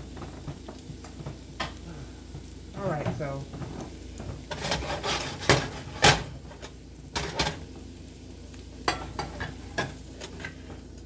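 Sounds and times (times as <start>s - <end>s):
faint frying sizzle: 0.0s - 11.0s
metal skillet clattering: 4.2s - 7.7s, 8.8s - 10.7s.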